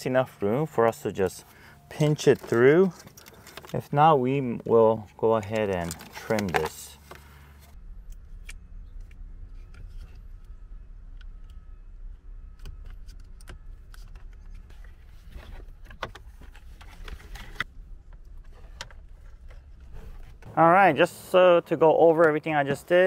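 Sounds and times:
plastic and wire clicks and rattles: 2.2s - 3.9s, 5.4s - 7.3s
steady low rumble: 6.9s - 23.0s.

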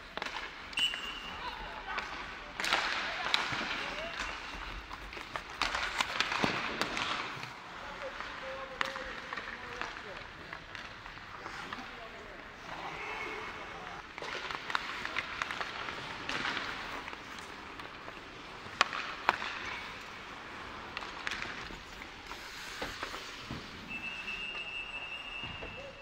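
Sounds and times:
skates scraping ice: 0.0s - 26.0s
high whistle-like tone: 0.8s - 1.3s, 23.9s - 26.0s
sticks striking puck: 2.0s - 11.9s, 14.2s - 24.0s.

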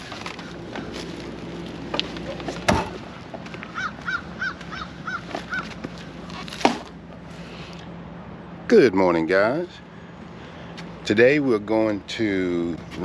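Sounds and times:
bird calling: 0.0s - 6.5s.

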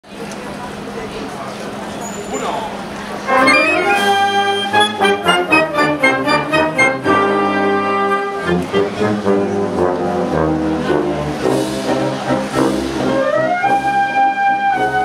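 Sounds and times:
wind band playing a march: 3.2s - 15.0s.

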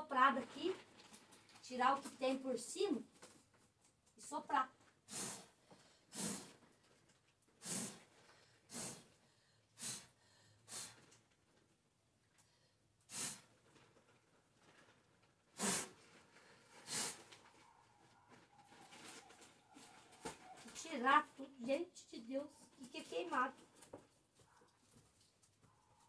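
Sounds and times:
person blowing puffs of air: 5.1s - 6.7s, 7.6s - 11.2s, 13.0s - 13.6s, 15.6s - 17.4s.

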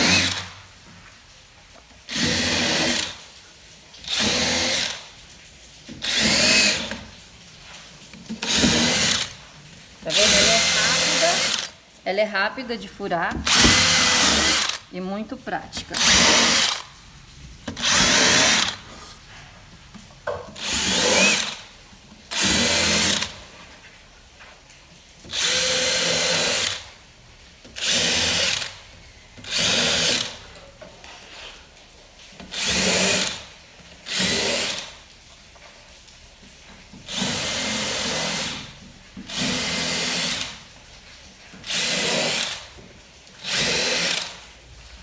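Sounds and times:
cordless drill boring into wood: 0.0s - 0.5s, 2.1s - 3.2s, 4.0s - 5.1s, 6.0s - 7.0s, 8.4s - 9.4s, 10.1s - 11.8s, 13.4s - 14.8s, 15.9s - 16.8s, 17.8s - 18.8s, 20.6s - 21.6s, 22.3s - 23.4s, 25.3s - 26.8s, 27.8s - 28.7s, 29.4s - 30.4s, 32.5s - 33.4s, 34.1s - 34.9s, 37.1s - 38.7s, 39.3s - 40.5s, 41.6s - 42.6s, 43.4s - 44.4s.

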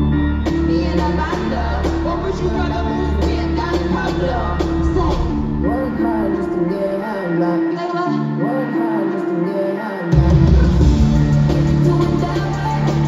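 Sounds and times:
heavy bass beat: 0.0s - 6.4s, 10.2s - 13.0s
hip-hop concert music: 0.0s - 13.0s
vocal over music: 0.0s - 13.0s.

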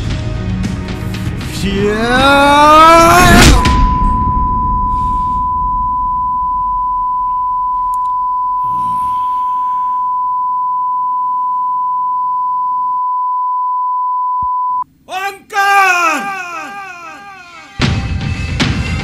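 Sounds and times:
low rumble: 1.4s - 9.0s
high-pitched sine tone: 2.9s - 14.8s.

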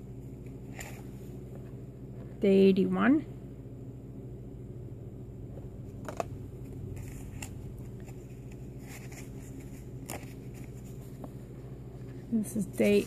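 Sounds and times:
steady low hum: 0.0s - 13.0s
paper rustling: 6.0s - 11.4s, 12.0s - 13.0s.

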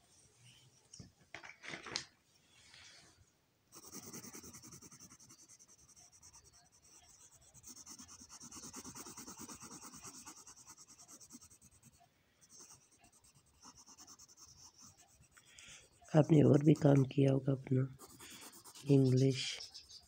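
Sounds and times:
pencil scratching on paper: 3.7s - 17.1s, 17.9s - 20.0s.

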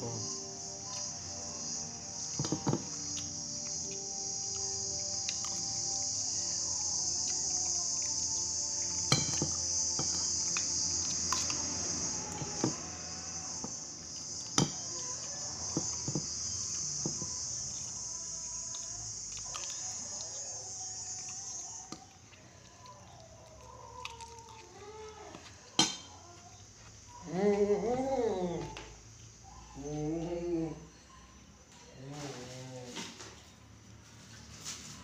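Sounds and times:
insects chirring: 0.0s - 35.0s
cutlery clinking on ceramic plate: 9.1s - 10.1s, 25.8s - 26.1s.

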